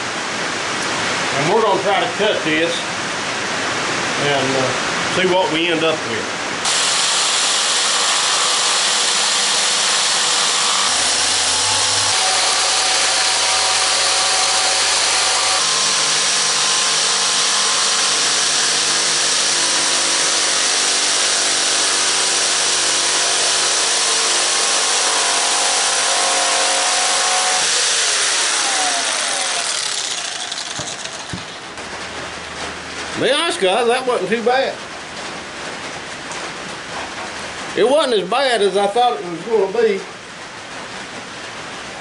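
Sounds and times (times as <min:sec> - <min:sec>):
jigsaw cutting board: 0:06.6 - 0:31.6.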